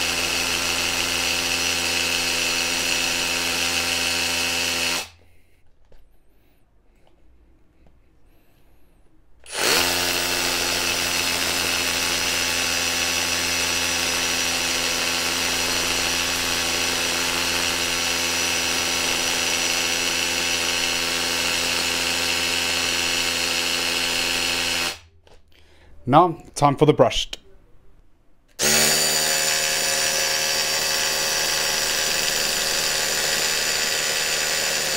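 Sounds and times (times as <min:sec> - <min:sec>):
hammer drill drilling into concrete: 0:00.0 - 0:05.2, 0:09.4 - 0:25.1, 0:28.5 - 0:34.9.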